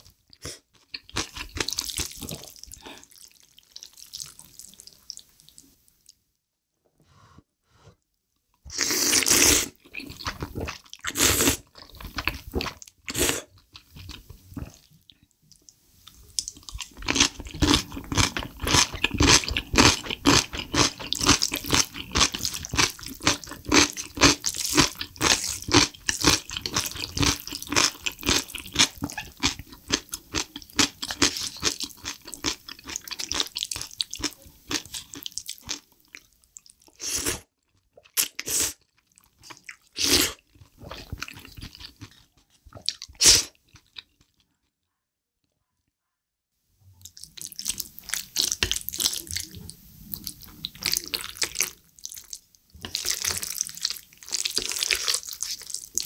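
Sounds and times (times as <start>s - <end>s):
slurping noodles: 8.7s - 11.8s
chewing with crisp clicks: 37.6s - 44.5s, 47.0s - 56.0s.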